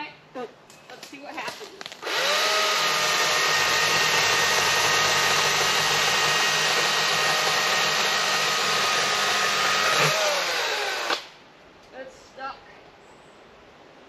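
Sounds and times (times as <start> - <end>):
battery chainsaw motor whine: 1.8 - 11.3.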